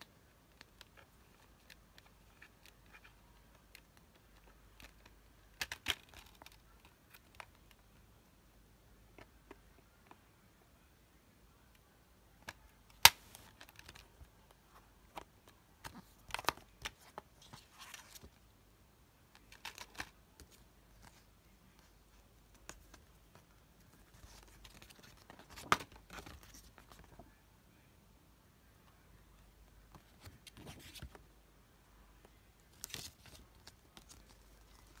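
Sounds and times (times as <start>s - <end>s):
paper booklet rustling: 13.0s - 18.4s, 19.4s - 27.2s, 29.9s - 31.2s, 32.6s - 35.0s.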